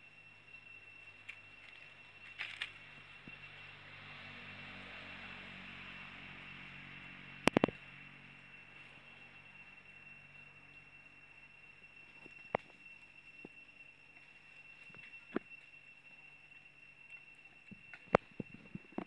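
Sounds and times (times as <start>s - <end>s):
thin high whine: 0.0s - 19.0s
sharp clicks: 7.5s - 7.8s.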